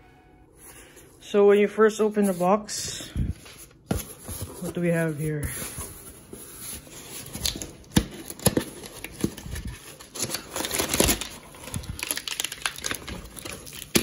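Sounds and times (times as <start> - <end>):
paper crinkling and rustling: 3.3 - 14.0.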